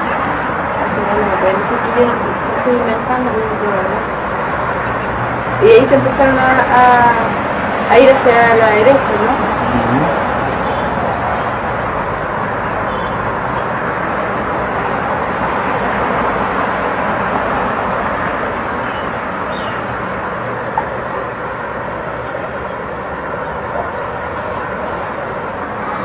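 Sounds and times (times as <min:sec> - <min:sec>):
distant city traffic hum: 0:00.0 - 0:26.0.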